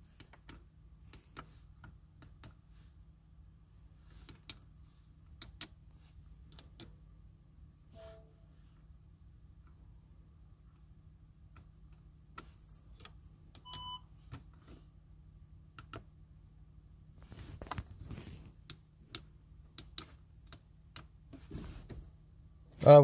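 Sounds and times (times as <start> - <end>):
short beep: 7.9 - 8.4, 13.6 - 14.0.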